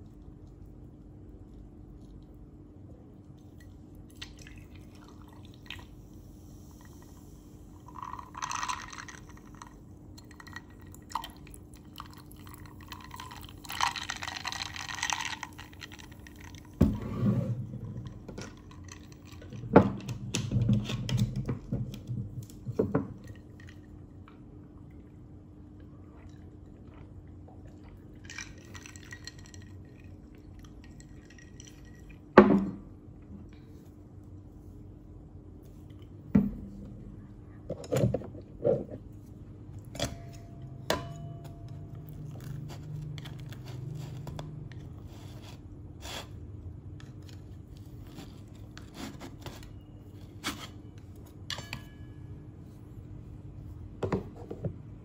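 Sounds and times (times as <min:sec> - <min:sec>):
water pouring into a glass: 0:07.8 - 0:16.8.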